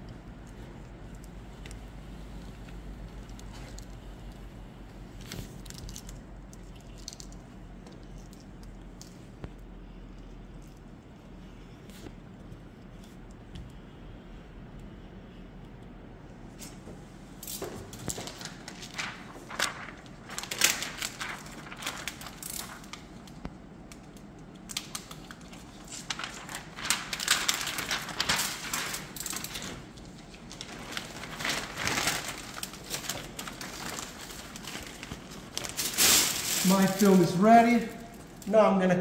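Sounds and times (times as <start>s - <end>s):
plastic film crinkling: 17.4s - 38.6s.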